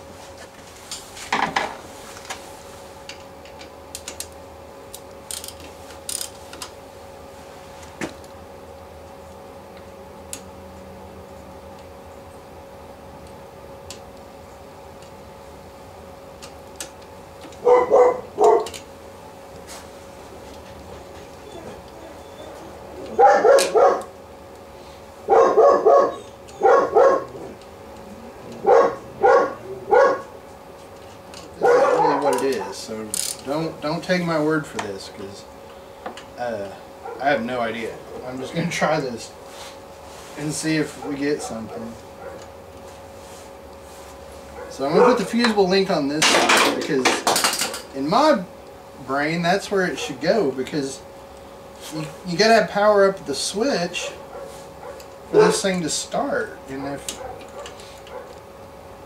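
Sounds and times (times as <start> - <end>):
faint hum: 0.0 - 59.0
dogs barking: 17.6 - 18.8, 21.4 - 24.2, 25.2 - 30.4, 31.5 - 32.8, 36.9 - 37.4, 40.8 - 42.6, 44.5 - 45.4, 50.0 - 50.2, 53.9 - 55.8, 57.1 - 58.4.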